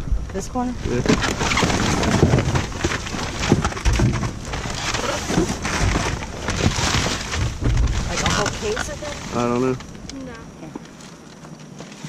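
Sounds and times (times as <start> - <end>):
plastic and cardboard rustling: 0.8 - 12.0
dull knocks: 1.0 - 9.9.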